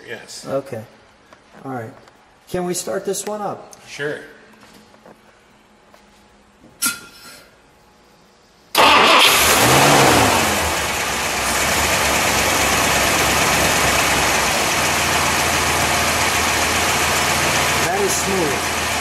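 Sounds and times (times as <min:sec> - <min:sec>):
car engine starting and idling: 0:08.7 - 0:19.0.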